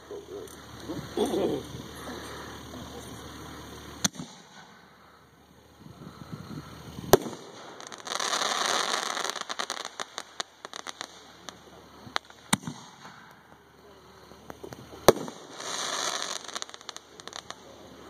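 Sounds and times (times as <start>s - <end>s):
firework shells bursting with bangs: 0.0s - 5.3s, 6.0s - 18.0s
firework hiss: 0.0s - 18.0s
crackling firework pops: 2.5s - 4.9s, 6.9s - 18.0s.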